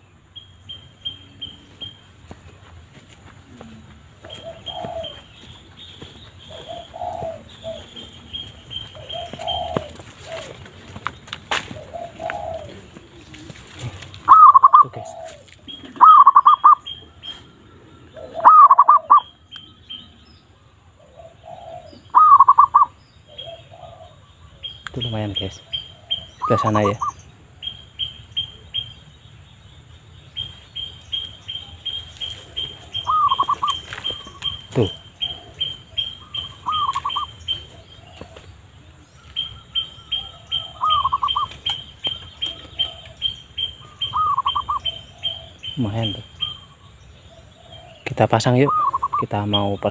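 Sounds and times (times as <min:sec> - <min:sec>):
dove cooing: 0:03.4 - 0:20.1, 0:20.9 - 0:28.9, 0:31.1 - 0:49.9
high chirp: 0:30.3 - 0:38.0, 0:39.0 - 0:47.0
short high bird chirps: 0:36.0 - 0:37.6.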